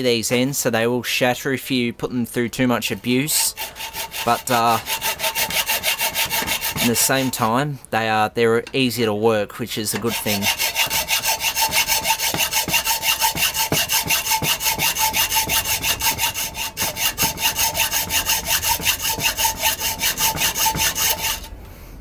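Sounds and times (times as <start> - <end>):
hacksaw cutting metal: 3.3 - 7.5, 9.9 - 21.5.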